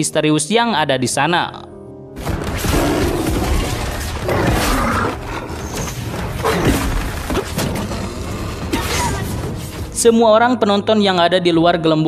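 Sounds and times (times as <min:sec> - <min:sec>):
tigers roaring and growling: 0:02.6 - 0:09.4.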